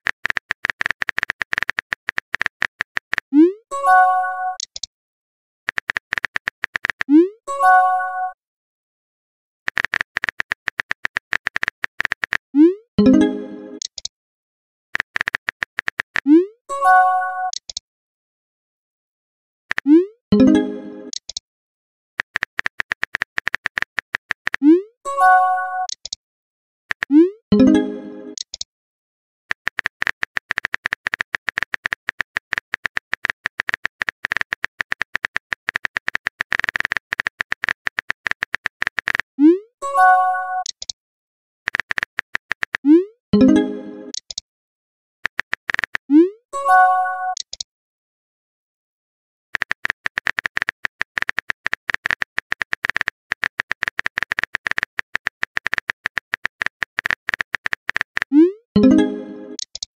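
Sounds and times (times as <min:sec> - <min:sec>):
phone keyboard typing clicks: 0:00.0 - 0:03.3, 0:04.5 - 0:04.9, 0:05.7 - 0:07.2, 0:09.7 - 0:12.4, 0:13.8 - 0:14.1, 0:15.0 - 0:16.3, 0:17.5 - 0:17.8, 0:19.7 - 0:21.4, 0:22.2 - 0:24.8, 0:25.8 - 0:26.2, 0:26.9 - 0:28.7, 0:29.5 - 0:39.3, 0:40.6 - 0:41.0, 0:41.7 - 0:44.4, 0:45.2 - 0:46.1, 0:47.3 - 0:47.6, 0:49.6 - 0:59.9
synthetic key clicks with beeps: 0:03.4 - 0:04.9, 0:16.2 - 0:17.8, 0:19.8 - 0:21.4, 0:24.6 - 0:26.2, 0:39.9 - 0:41.0, 0:42.8 - 0:44.4, 0:46.6 - 0:47.7, 0:57.9 - 0:59.9
chiming tone: 0:58.8 - 0:59.6.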